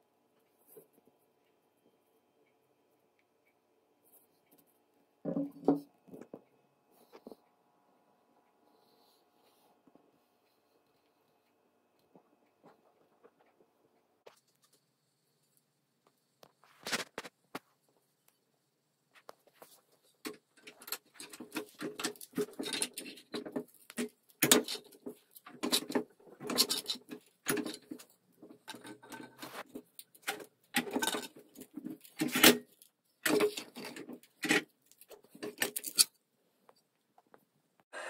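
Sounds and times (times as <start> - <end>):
metal clicks and knocks: 20.2 - 36.1
metal scraping: 20.7 - 32.6.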